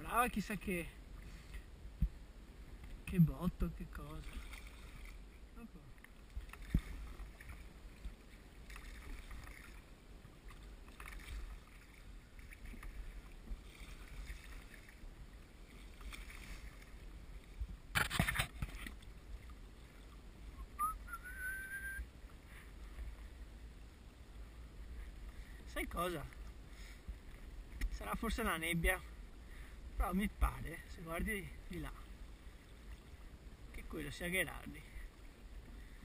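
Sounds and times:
oar swishing through water: 3.9s - 28.4s
short rising whistle: 20.6s - 22.1s.

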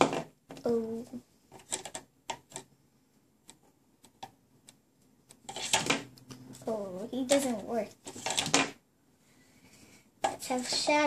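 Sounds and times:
plastic toys clicking: 1.5s - 2.7s.

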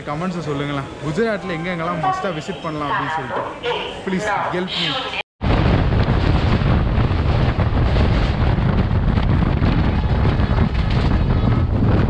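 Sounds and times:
train running rumble: 5.4s - 12.0s
wind rushing over microphone: 5.4s - 12.0s.

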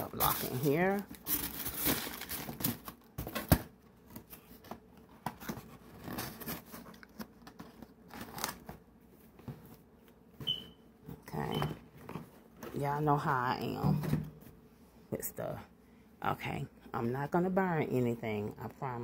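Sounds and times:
packaging crinkling and rustling: 0.0s - 8.9s.

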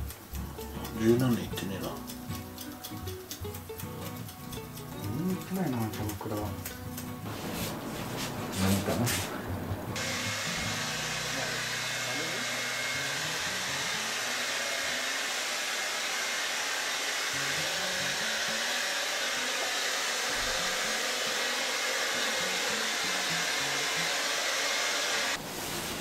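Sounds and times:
hair dryer blowing: 10.0s - 25.4s.

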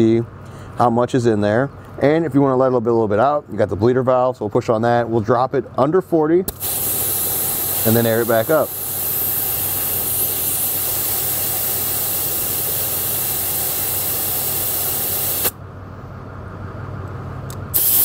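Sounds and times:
air hissing out of a tire: 6.5s - 15.6s, 17.7s - 18.0s.

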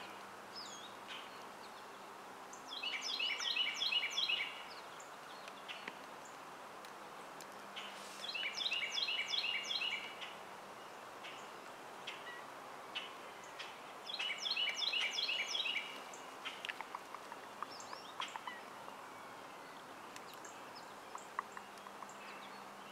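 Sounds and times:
birds singing: 0.0s - 6.5s, 7.2s - 22.9s
short bird chirps and calls: 2.6s - 4.9s, 7.8s - 10.4s, 13.0s - 18.7s.

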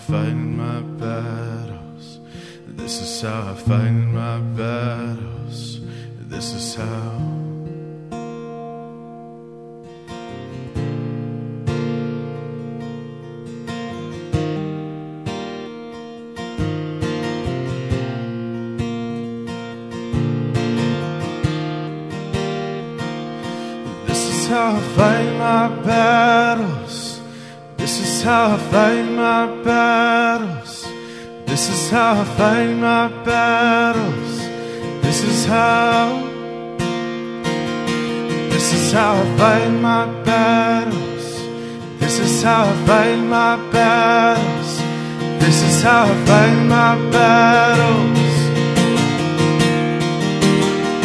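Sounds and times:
man singing: 0.0s - 7.8s, 23.9s - 36.9s, 38.2s - 49.2s
acoustic guitar strumming: 0.0s - 51.0s.

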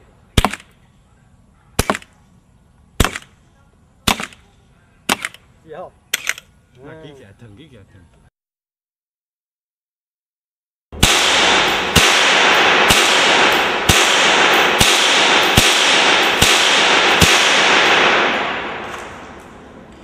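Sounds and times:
rifle shots echoing: 0.4s - 0.7s, 1.8s - 2.2s, 3.0s - 3.4s, 4.0s - 4.5s, 5.1s - 5.4s, 11.0s - 19.9s.

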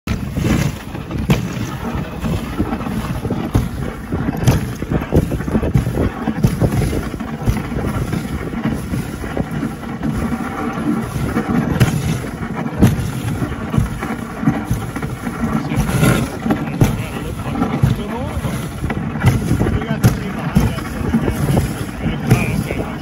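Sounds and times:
sled knocks and jolts: 0.0s - 23.0s
sled runners rumbling on snow: 0.0s - 23.0s
wind buffeting microphone: 0.0s - 23.0s.

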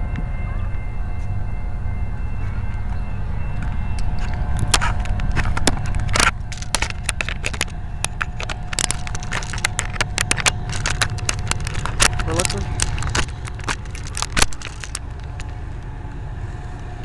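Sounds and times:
low rumble: 0.0s - 17.0s
sharp clicks and knocks: 3.6s - 15.6s.

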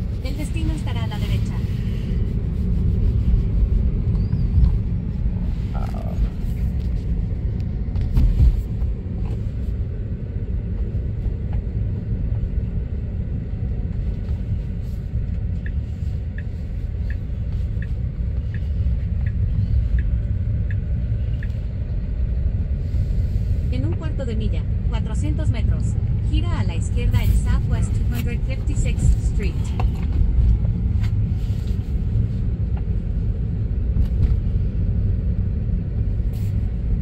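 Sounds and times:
road and tyre rumble: 0.0s - 37.0s
light even ticking: 17.1s - 21.6s.

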